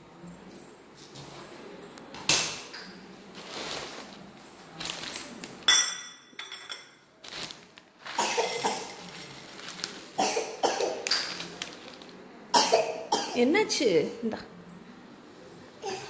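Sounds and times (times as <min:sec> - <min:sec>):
plastic packet rustling: 0:03.2 - 0:05.8, 0:07.2 - 0:12.3
steel bowl clinking: 0:03.5 - 0:07.0.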